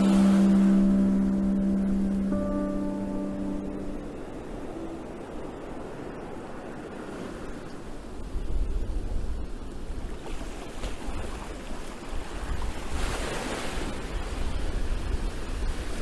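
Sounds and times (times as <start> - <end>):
strong wind gusting on microphone: 8.0 - 10.2, 12.1 - 16.0.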